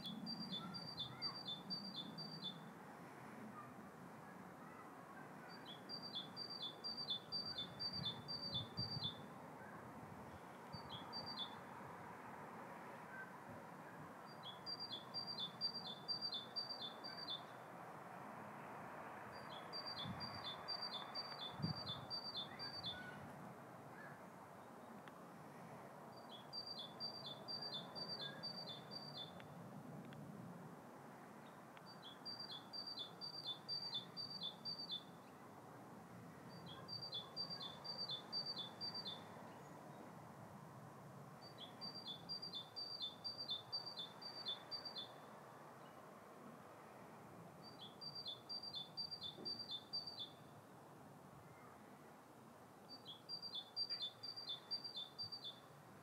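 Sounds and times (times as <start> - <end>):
small songbird singing: 0.0 - 2.6, 5.5 - 9.3, 10.7 - 11.7, 14.3 - 17.6, 19.3 - 23.2, 26.1 - 29.5, 31.4 - 35.4, 36.5 - 39.8, 41.4 - 46.0, 47.6 - 50.5, 52.8 - 55.7
faint background hiss: 0.0 - 56.0.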